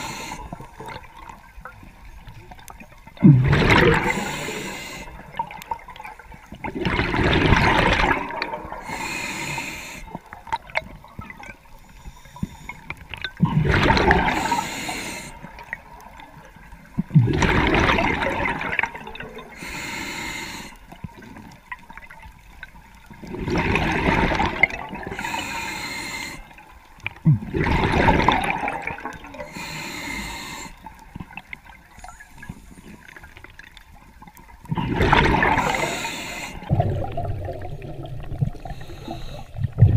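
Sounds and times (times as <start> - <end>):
regulator inhalation hiss: 0.0 - 0.6, 4.0 - 5.2, 8.8 - 10.2, 14.3 - 15.4, 19.6 - 20.8, 25.1 - 26.5, 29.4 - 30.8, 35.6 - 36.7, 38.6 - 39.5
exhaled bubbles surging: 3.0 - 9.1, 13.4 - 14.7, 17.0 - 19.6, 23.2 - 25.4, 27.2 - 29.6, 34.6 - 39.9.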